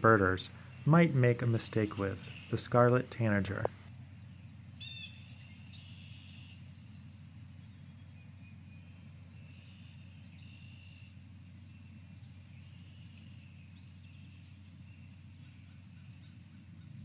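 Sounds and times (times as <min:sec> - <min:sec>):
steady low hum: 0:00.0 - 0:17.0
faint high bird calls: 0:04.1 - 0:17.0.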